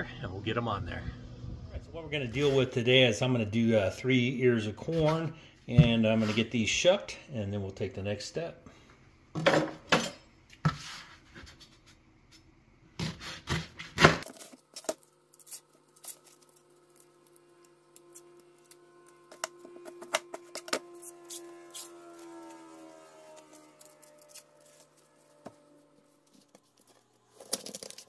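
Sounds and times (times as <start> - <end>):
faint hum with held tones: 0.0 - 13.2, 14.2 - 28.0
corn husks tearing and rustling: 14.2 - 28.0.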